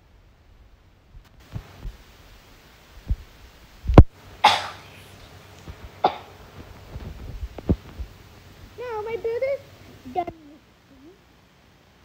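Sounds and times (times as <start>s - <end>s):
dull low thumps: 3.0s - 4.2s, 5.7s - 8.3s
short cough: 4.4s - 4.9s.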